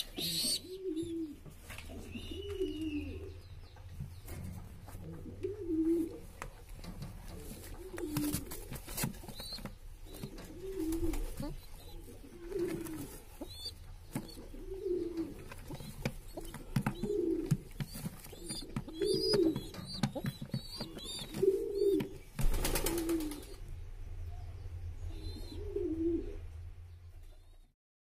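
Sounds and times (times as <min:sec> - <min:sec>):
pigeons cooing: 0:00.0 - 0:03.5, 0:04.9 - 0:23.6, 0:25.1 - 0:26.5.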